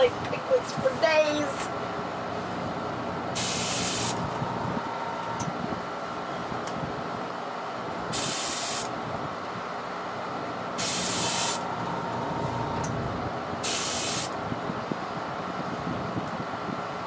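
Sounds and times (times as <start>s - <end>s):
airbrush spraying hiss: 3.4s - 4.2s, 8.2s - 8.9s, 10.8s - 11.6s, 13.6s - 14.3s.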